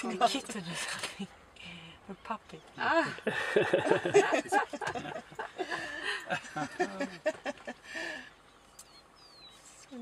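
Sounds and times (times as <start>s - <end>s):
quiet chuckling: 3.1s - 8.3s.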